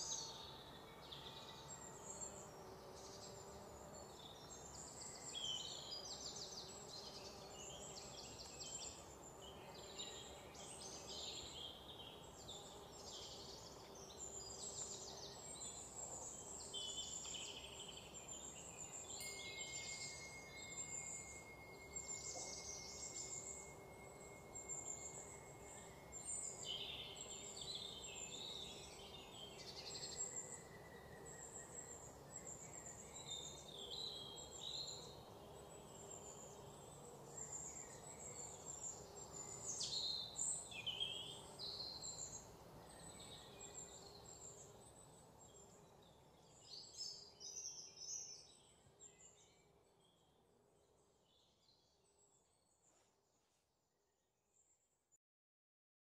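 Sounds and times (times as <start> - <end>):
birds and insects chirping: 0.0 - 52.8
thin steady high tone: 18.6 - 28.8.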